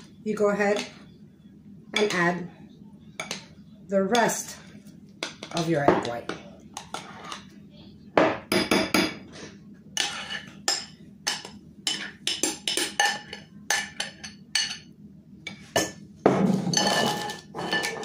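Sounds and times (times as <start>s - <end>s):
spatula scraping glass bowls: 6.8s - 7.5s, 10.0s - 10.6s, 16.5s - 18.0s.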